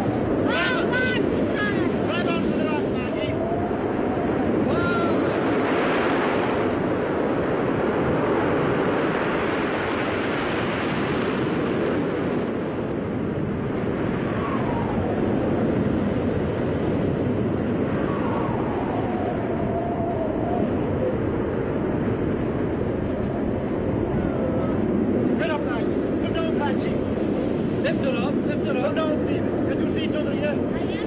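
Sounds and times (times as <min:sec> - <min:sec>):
waves breaking: 0:00.4 - 0:12.6.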